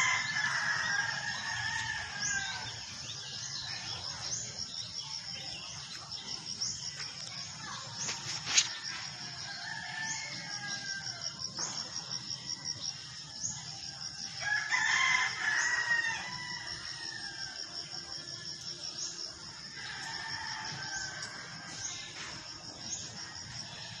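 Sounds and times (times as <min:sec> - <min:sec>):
rooster crowing: 0:00.0 - 0:02.9, 0:09.5 - 0:11.3, 0:14.4 - 0:17.6
pulsing insect trill: 0:00.0 - 0:24.0.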